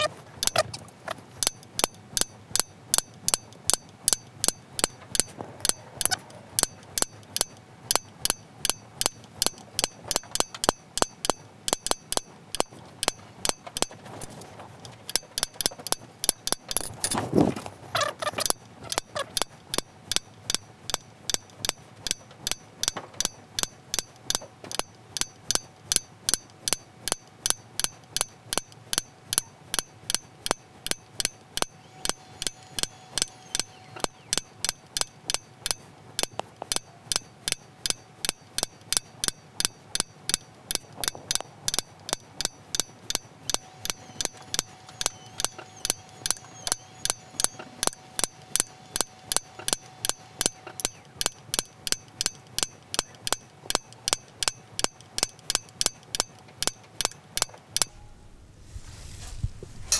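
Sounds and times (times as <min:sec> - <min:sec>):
hammer tapping a metal punch: 0:00.0 - 0:00.7, 0:01.4 - 0:14.3, 0:14.9 - 0:17.2, 0:18.0 - 0:58.2
handling noise: 0:16.6 - 0:19.3, 0:57.6 - 0:59.9.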